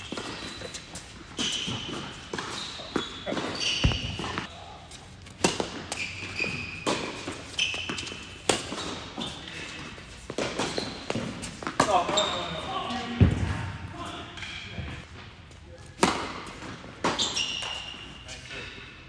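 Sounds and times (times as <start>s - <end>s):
tennis ball bouncing: 1.6s - 4.5s
racket hitting ball: 3.3s - 4.5s, 5.4s - 6.0s.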